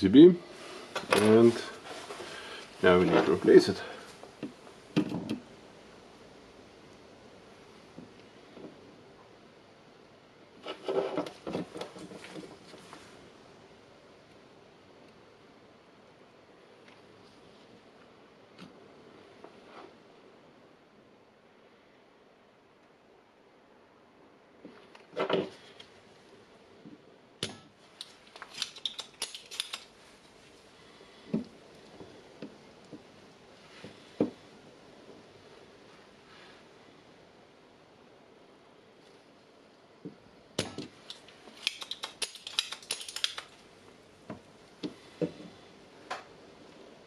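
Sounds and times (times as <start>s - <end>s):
desoldering pump snap: 27.4s - 29.9s, 40.6s - 43.5s
small clicks and taps: 40.1s - 43.6s.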